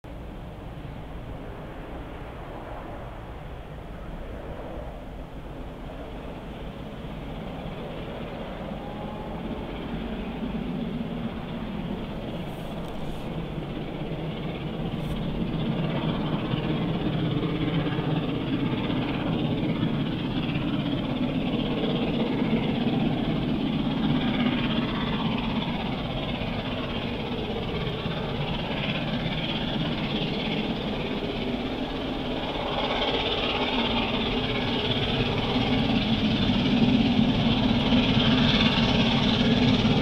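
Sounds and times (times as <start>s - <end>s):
steam locomotive exhaust: 8.2s - 40.0s.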